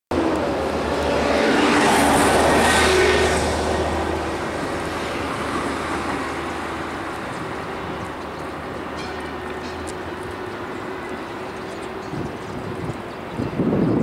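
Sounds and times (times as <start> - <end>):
vehicle passing close by: 0.1 - 8.4
steady traffic noise: 0.1 - 14.0.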